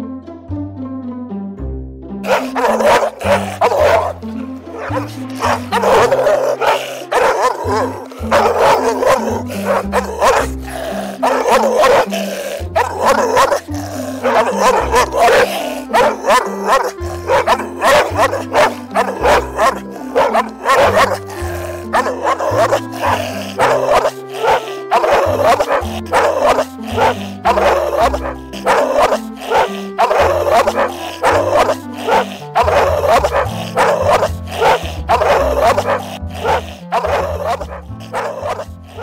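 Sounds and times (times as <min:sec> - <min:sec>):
background music with bass: 0:00.0 - 0:39.0
dog barking: 0:02.2 - 0:39.0.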